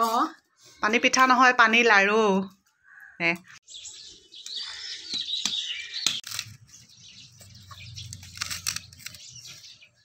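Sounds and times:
small birds chirping: 0:02.4 - 0:10.0.

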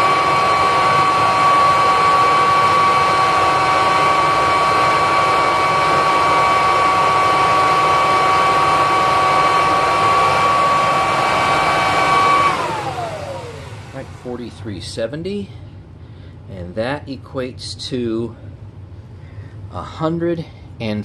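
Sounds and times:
vacuum cleaner motor whining: 0:00.0 - 0:14.4.

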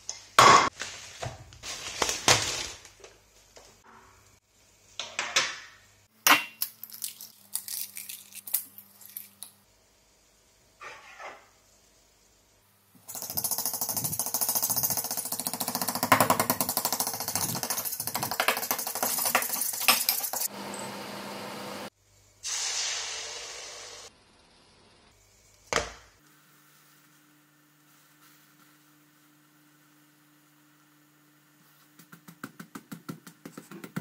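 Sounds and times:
brief hiss: 0:22.4 - 0:24.1.

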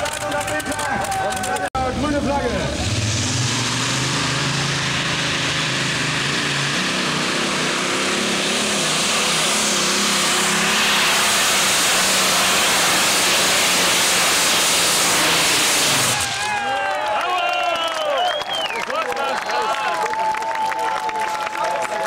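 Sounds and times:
tractor engine roaring under load: 0:00.0 - 0:17.2.

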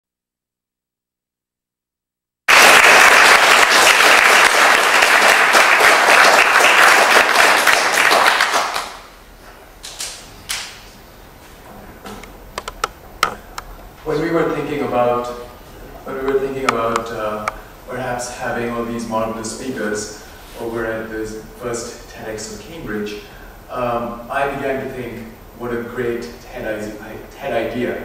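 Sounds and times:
audience applauding: 0:02.5 - 0:09.1.

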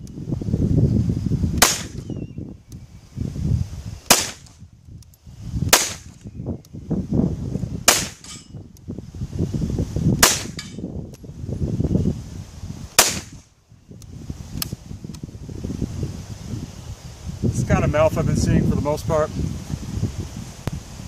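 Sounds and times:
wind rumbling on microphone: 0:00.0 - 0:21.0
pistol shots: 0:01.6 - 0:02.1, 0:04.1 - 0:04.5, 0:05.7 - 0:06.2, 0:07.9 - 0:08.4, 0:10.2 - 0:10.7, 0:13.0 - 0:13.4.

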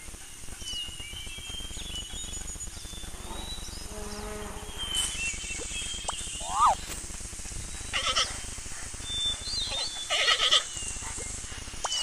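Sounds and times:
insects buzzing: 0:00.0 - 0:12.0
short low animal call: 0:06.4 - 0:06.8.

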